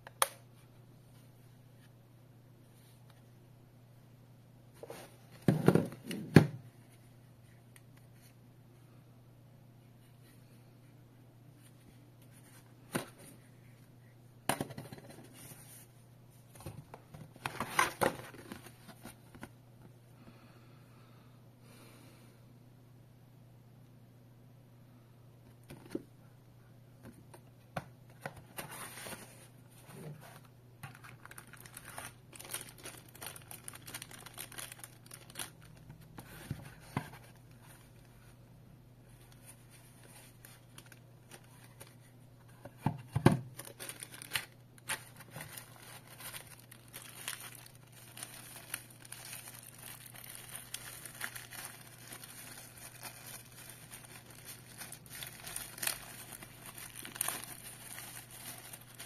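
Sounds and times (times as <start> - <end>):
plastic and paper crinkling: 28.3 - 38.4, 39.1 - 59.0.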